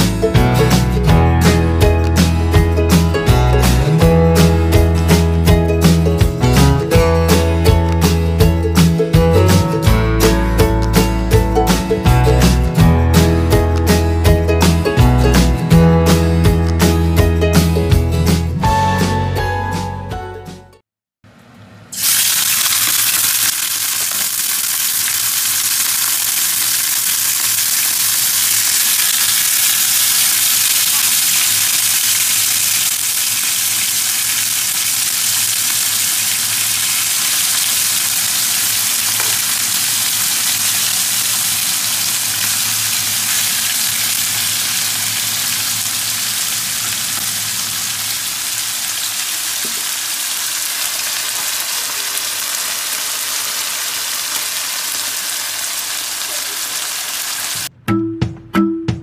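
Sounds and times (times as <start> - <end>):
chicken sizzling in hot oil: 22.0 - 57.7.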